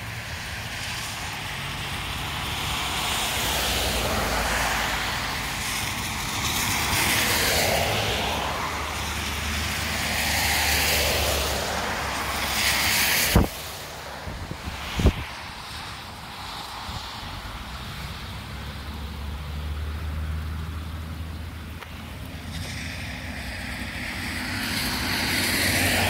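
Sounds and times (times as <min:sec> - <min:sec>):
gusty wind through foliage: 0:00.0 - 0:26.0.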